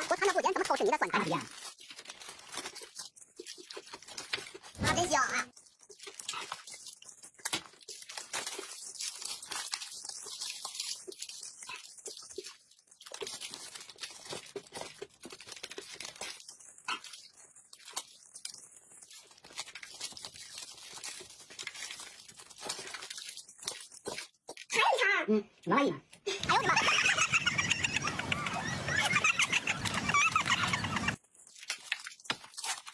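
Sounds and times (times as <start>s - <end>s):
plastic wrapping crinkling: 0.0s - 24.7s, 26.4s - 32.9s
wet slurping and smacking: 5.7s - 8.0s, 8.8s - 13.4s.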